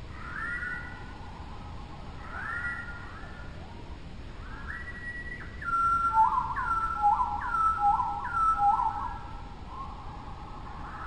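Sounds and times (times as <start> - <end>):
bird whistled calls: 0.2 - 1.0, 2.2 - 3.0, 4.5 - 10.0.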